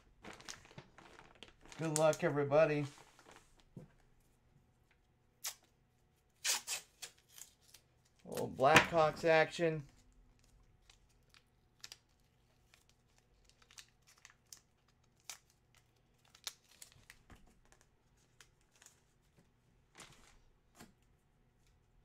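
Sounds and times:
packaging crinkling and rustling: 0:00.0 - 0:03.8, 0:10.0 - 0:20.9.

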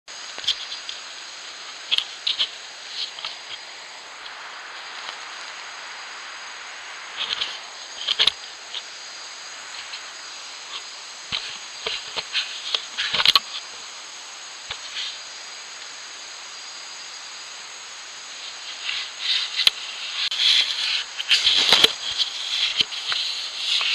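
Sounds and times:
steady hiss: 0:00.1 - 0:23.9
scrapes and knocks on camera housing: 0:20.3 - 0:23.9.

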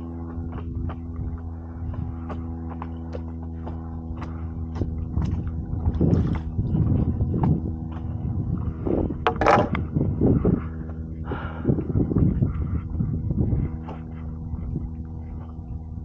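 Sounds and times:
steady low hum: 0:00.0 - 0:16.0
paddle strokes splashing water: 0:04.3 - 0:06.8.

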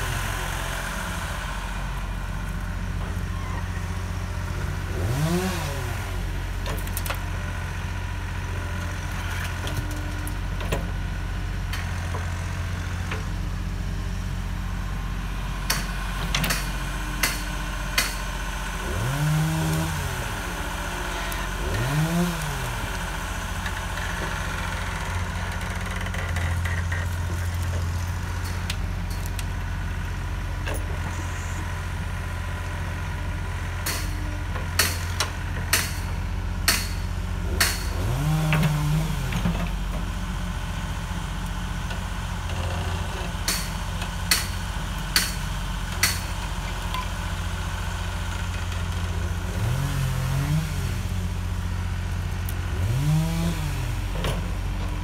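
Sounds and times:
excavator diesel engine revving: 0:00.0 - 0:55.0.

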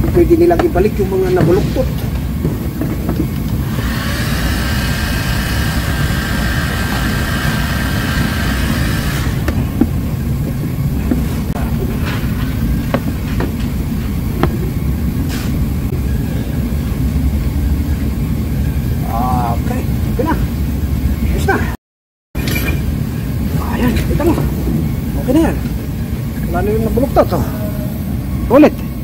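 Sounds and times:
heat gun fan rushing: 0:00.0 - 0:16.0
high whining tone: 0:00.0 - 0:21.6.

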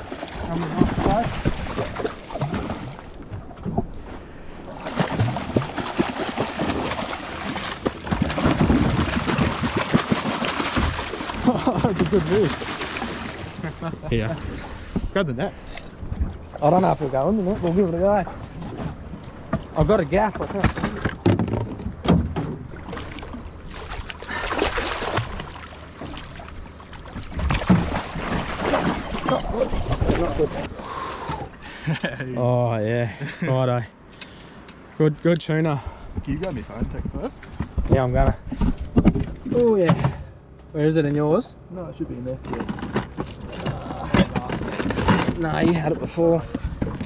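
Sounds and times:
fish thrashing and splashing: 0:00.0 - 0:03.3, 0:04.7 - 0:13.7, 0:22.8 - 0:30.7.

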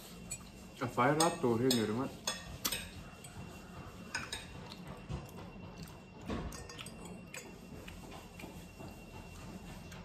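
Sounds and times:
cutlery scraping glass plates: 0:00.2 - 0:03.4, 0:04.1 - 0:04.8.

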